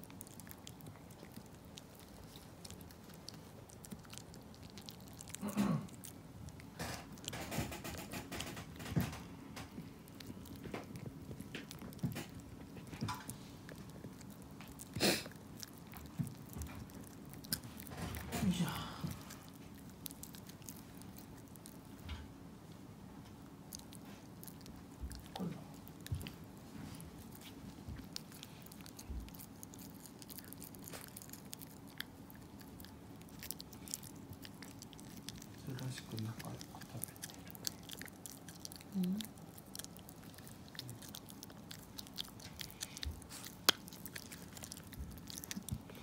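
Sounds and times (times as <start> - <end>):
dog chewing and crunching: 0.0 - 46.0
teeth clicking: 28.0 - 46.0.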